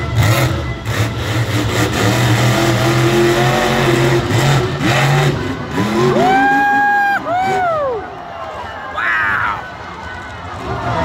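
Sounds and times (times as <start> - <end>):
truck engine revving loudly: 0.0 - 7.6.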